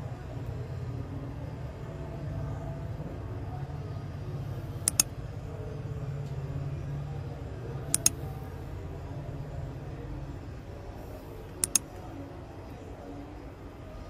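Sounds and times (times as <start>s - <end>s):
steady low hum: 0.0s - 14.0s
quick double clicks: 4.8s - 5.1s, 7.9s - 8.2s, 11.6s - 11.9s.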